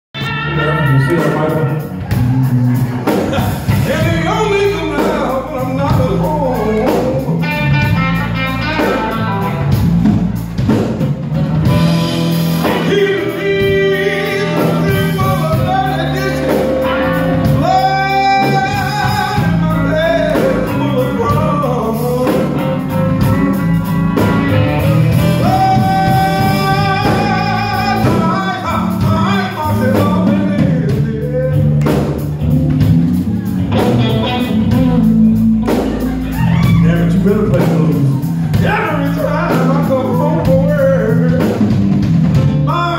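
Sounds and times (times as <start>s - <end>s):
live blues band playing: 0.1s - 42.9s
man singing: 0.2s - 2.0s, 3.0s - 9.6s, 12.5s - 32.5s, 33.3s - 42.9s
trumpet long notes: 0.2s - 2.0s.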